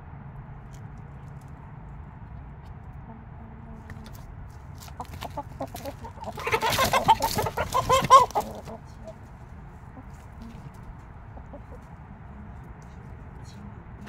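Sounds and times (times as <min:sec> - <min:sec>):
chickens clucking: 0:04.8 - 0:13.7.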